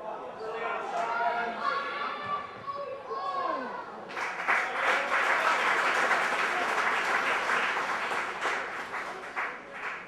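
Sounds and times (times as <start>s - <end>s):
crowd clapping and cheering: 4.1s - 10.0s.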